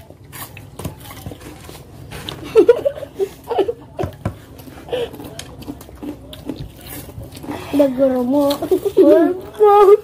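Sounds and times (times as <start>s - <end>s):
children giggling: 2.4s - 4.2s, 8.6s - 9.4s.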